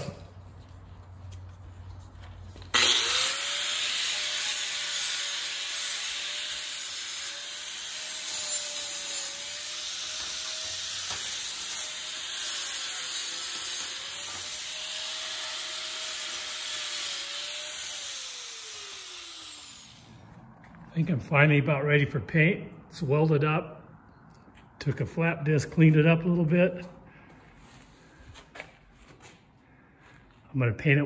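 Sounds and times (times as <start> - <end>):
angle grinder grinding metal: 2.6 - 20.4.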